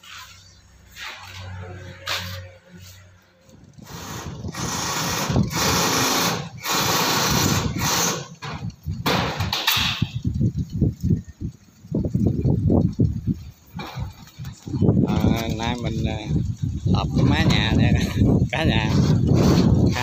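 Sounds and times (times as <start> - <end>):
screw gun drilling into metal roof: 3.8 - 10.2, 18.7 - 20.0.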